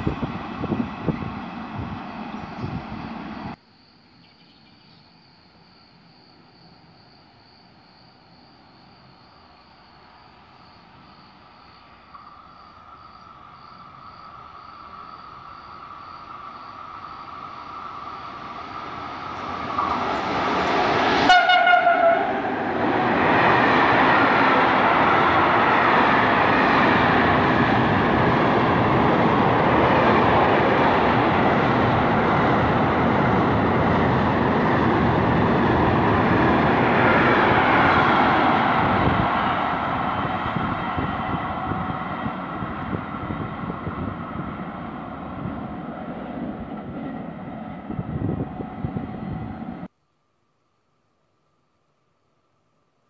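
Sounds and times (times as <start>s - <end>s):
freight train passing: 0.0s - 3.6s, 5.6s - 49.9s
train horn blast: 21.2s - 22.5s.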